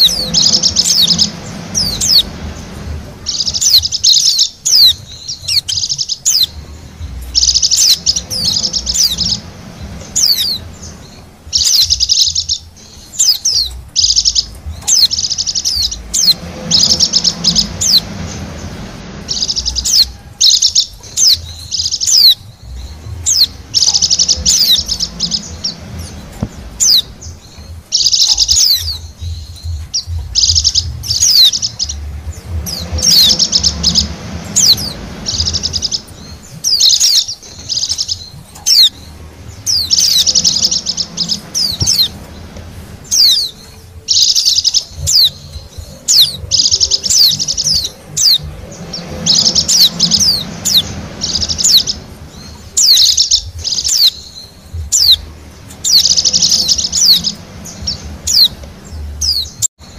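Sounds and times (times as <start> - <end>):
birds twittering: 0.0 - 59.9
thin high falling bird calls: 0.0 - 59.9.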